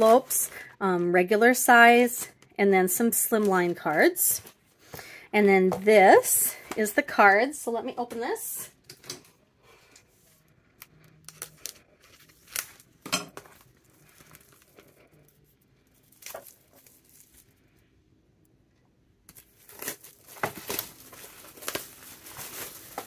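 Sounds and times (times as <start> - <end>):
plastic shrink-wrap tearing and crinkling: 10.8 - 17.8, 19.3 - 23.0.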